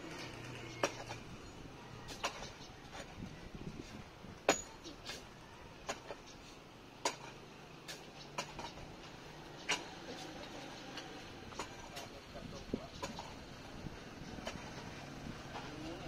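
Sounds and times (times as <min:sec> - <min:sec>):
digging tool striking dry ground: 0:04.4 - 0:06.3, 0:07.0 - 0:08.8.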